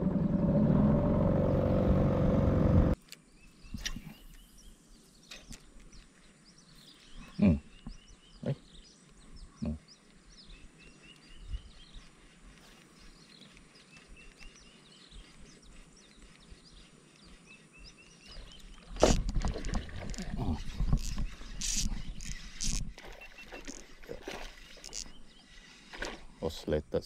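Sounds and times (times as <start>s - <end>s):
birds chirping: 2.9s - 27.0s.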